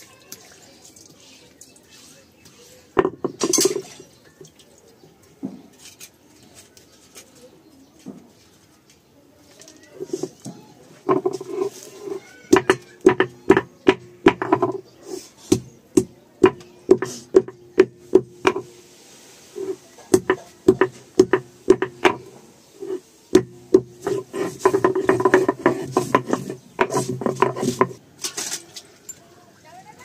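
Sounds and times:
grinding stone scraping knocks: 3.0s - 3.9s, 10.0s - 14.9s, 15.5s - 18.8s, 19.5s - 28.0s.

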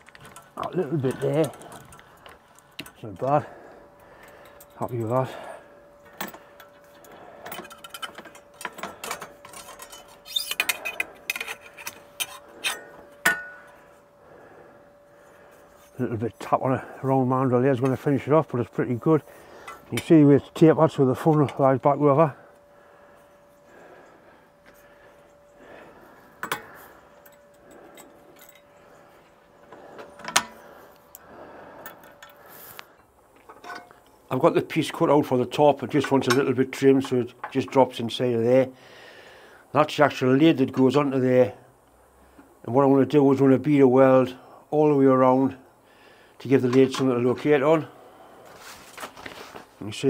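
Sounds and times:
faint steady hum: 0.0s - 50.0s
steel ring clinking and knocking: 6.0s - 13.8s, 26.4s - 28.8s, 33.4s - 34.0s
light metal clinks: 24.6s - 31.2s.

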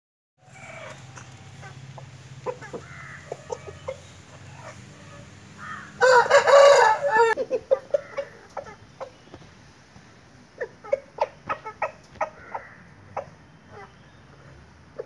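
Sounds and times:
rooster clucking: 0.4s - 9.4s, 10.5s - 15.0s
rooster crowing: 4.6s - 7.4s.

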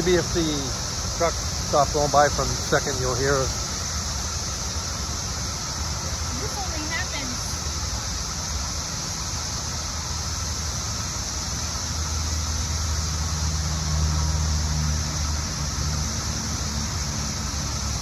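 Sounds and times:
cicadas droning: 0.0s - 18.0s
highway traffic: 0.0s - 18.0s.

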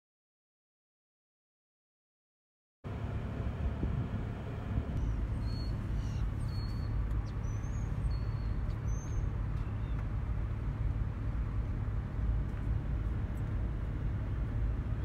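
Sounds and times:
wind buffeting microphone: 3.6s - 15.0s
bird chirping: 5.0s - 10.0s.

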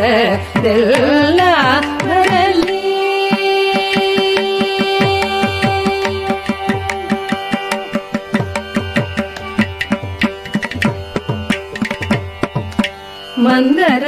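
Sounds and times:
person singing: 0.0s - 8.0s.

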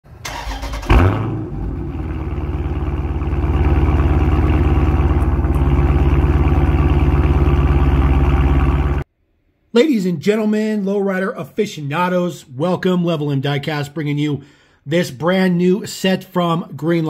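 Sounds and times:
car engine starting and idling: 0.1s - 9.1s.

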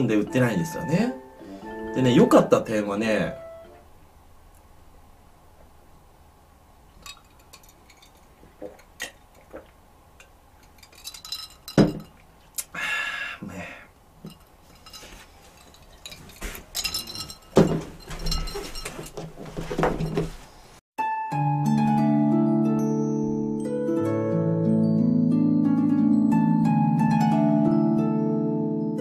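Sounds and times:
light music: 0.0s - 4.0s, 21.0s - 29.0s
drinking glass clinking: 7.0s - 9.7s, 10.6s - 12.3s, 14.2s - 20.4s.

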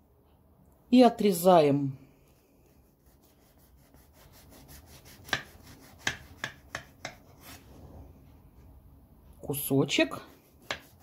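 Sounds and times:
knife sawing through crust: 3.0s - 7.6s.

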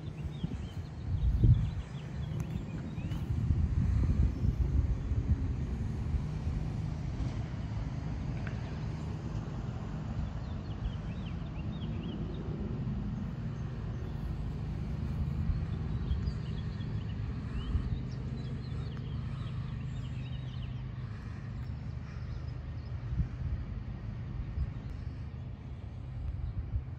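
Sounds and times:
birds chirping: 0.0s - 4.6s, 10.2s - 26.6s
steady low rumble: 0.0s - 26.9s.

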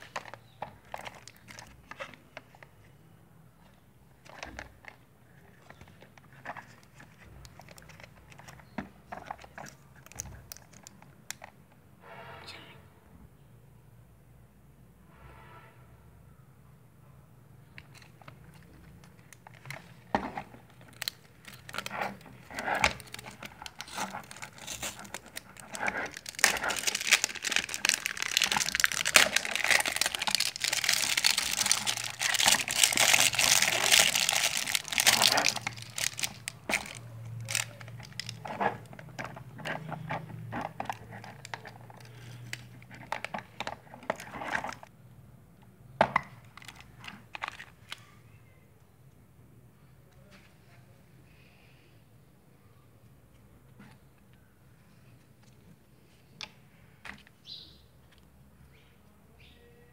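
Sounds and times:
plastic wrapper crinkling and tearing: 0.0s - 2.7s, 4.2s - 11.5s, 17.8s - 44.9s, 46.4s - 48.1s.

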